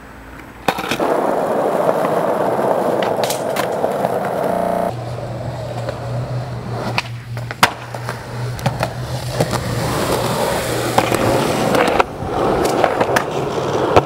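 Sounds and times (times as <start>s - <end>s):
skateboard wheels rolling on pavement: 0.0s - 14.0s
skateboard clacking on ground: 0.3s - 6.1s, 6.7s - 14.0s
low hum: 1.0s - 12.3s.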